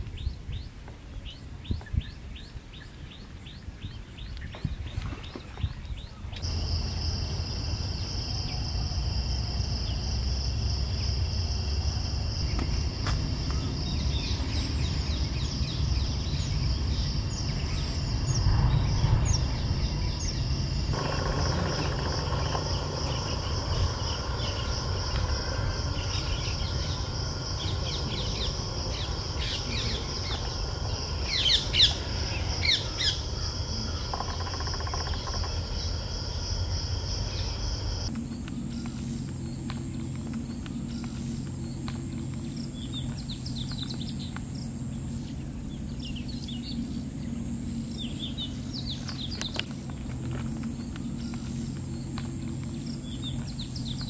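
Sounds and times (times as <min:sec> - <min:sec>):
low background rumble: 0:05.6 - 0:54.0
high insect drone: 0:06.4 - 0:54.0
bird chirps: 0:12.4 - 0:35.9, 0:37.3 - 0:54.0.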